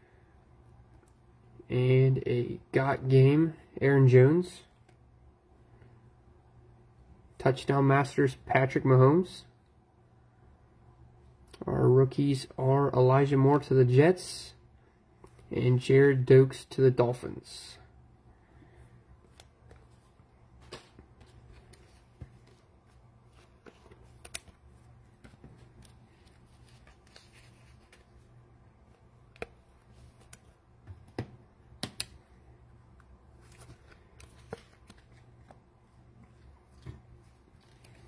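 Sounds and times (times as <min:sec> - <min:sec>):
steady low hum: 0:00.0 - 0:38.0
cards clicking and tapping: 0:23.4 - 0:28.0, 0:28.9 - 0:32.2.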